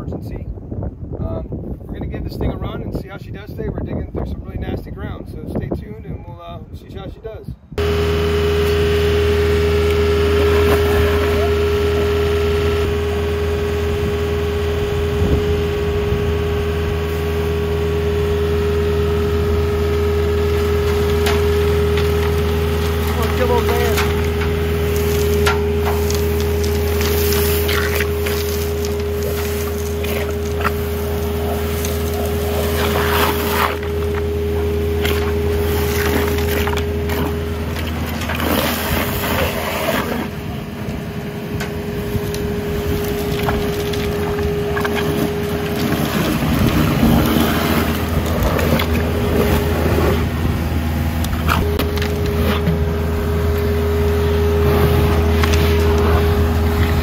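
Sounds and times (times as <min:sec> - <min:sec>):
vacuum truck engine and blower: 0:07.8 - 0:57.0.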